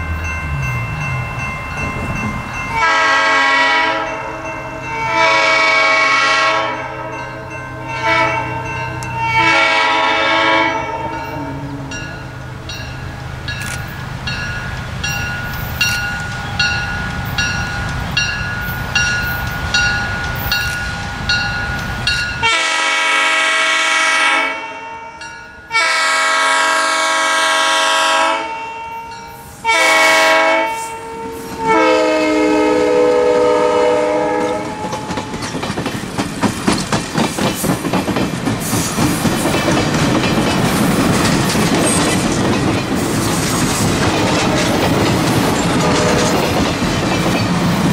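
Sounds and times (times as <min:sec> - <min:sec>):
crossing bell ringing: 0:00.0 - 0:23.4, 0:24.5 - 0:26.8, 0:27.5 - 0:36.1, 0:44.0 - 0:47.7
locomotive air horn blasts: 0:02.8 - 0:07.2, 0:07.9 - 0:12.0, 0:22.4 - 0:25.0, 0:25.7 - 0:29.0, 0:29.6 - 0:34.8, 0:45.8 - 0:46.4
train wheels clicking over rail joints: 0:11.1 - 0:22.4, 0:34.3 - 0:47.9.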